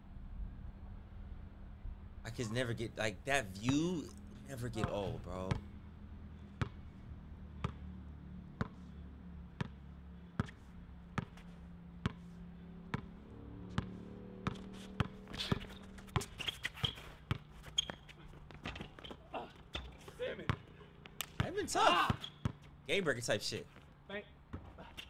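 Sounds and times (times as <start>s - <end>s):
basketball bouncing on hard court: 6.6s - 6.8s, 7.6s - 7.9s, 8.6s - 8.8s, 9.6s - 9.8s, 10.4s - 11.4s, 12.0s - 12.3s, 12.9s - 22.7s.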